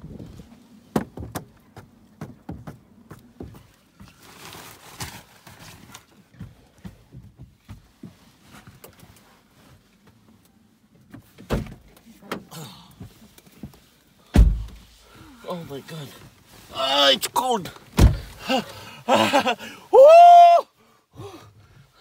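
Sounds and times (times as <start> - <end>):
rustling and scraping: 3.2 - 12.3.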